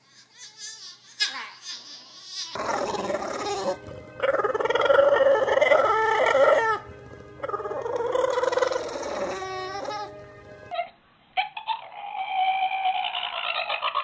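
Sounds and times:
dog howling: 0:02.5 - 0:10.2
dog whining: 0:02.5 - 0:12.6.

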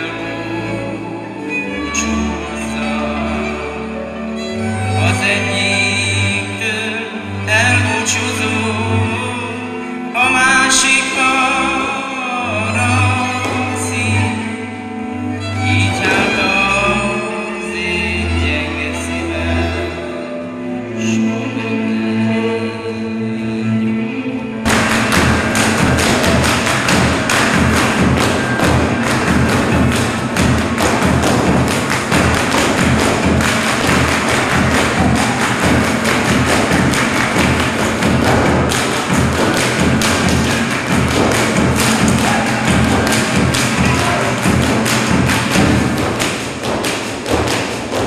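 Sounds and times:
boots stamping on stage floor: 0:16.0 - 0:16.6, 0:24.7 - 0:48.0.

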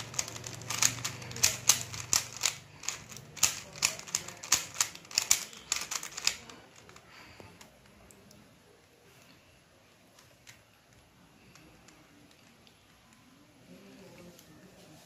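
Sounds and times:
puzzle cube clacking: 0:00.0 - 0:08.0.

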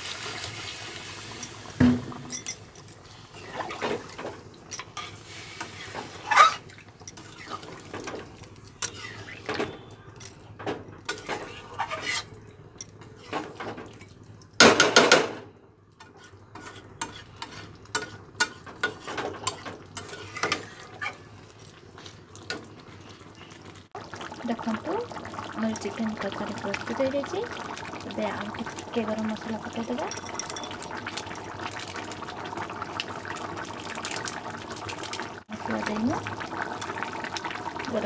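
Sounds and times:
metal spatula scraping pan: 0:08.8 - 0:09.9, 0:11.1 - 0:12.4, 0:16.0 - 0:21.2.

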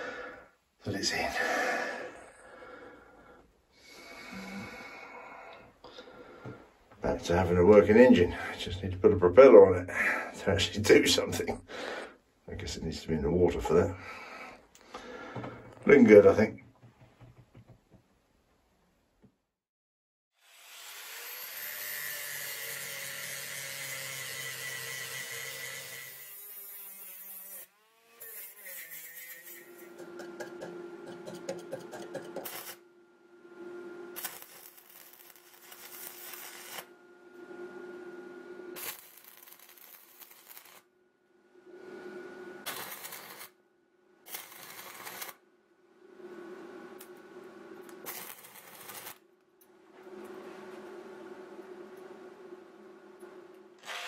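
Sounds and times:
angle grinder grinding steel: 0:20.4 - 0:32.8, 0:38.8 - 0:40.8
welding arc crackling: 0:32.1 - 0:32.8, 0:34.1 - 0:36.9, 0:38.8 - 0:40.9, 0:42.7 - 0:43.6, 0:44.3 - 0:45.4, 0:47.8 - 0:49.2
steady low hum: 0:45.4 - 0:53.8.

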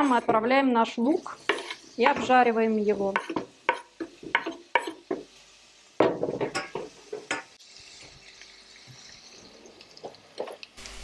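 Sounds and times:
onion sizzling in pan: 0:00.0 - 0:11.0
knife scraping on cutting board: 0:01.4 - 0:01.8.

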